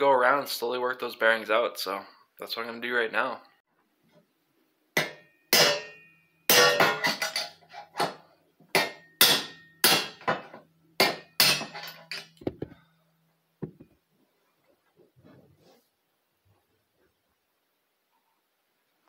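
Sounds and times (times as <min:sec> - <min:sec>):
hammer striking steel punch: 0:05.0 - 0:07.3, 0:08.8 - 0:11.9.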